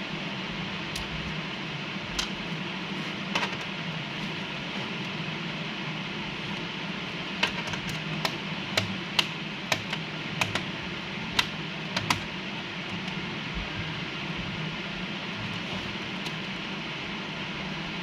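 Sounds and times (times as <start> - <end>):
steady background hum: 0.0 - 18.0.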